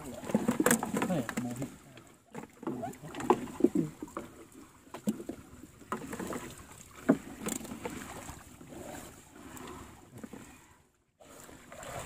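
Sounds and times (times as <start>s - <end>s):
sea water splashing against boat: 0.0s - 12.0s.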